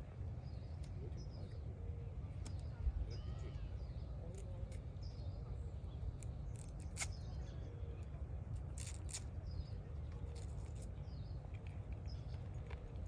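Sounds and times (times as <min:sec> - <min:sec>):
faint bird chirps: 0:00.4 - 0:06.0.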